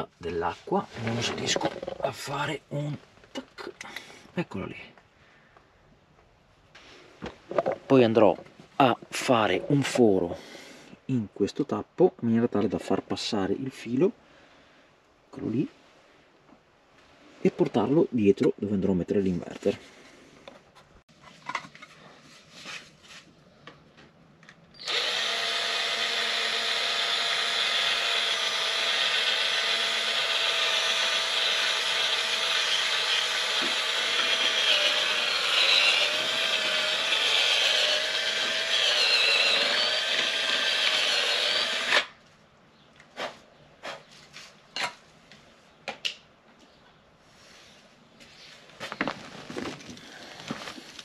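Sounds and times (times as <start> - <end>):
cordless drill boring plastic: 24.8 - 42.1.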